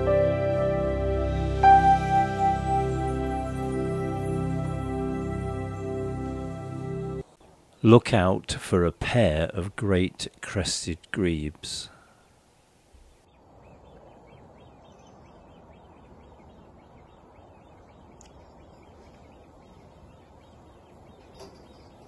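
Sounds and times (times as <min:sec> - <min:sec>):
distant bird calls: 0:11.9 - 0:22.0.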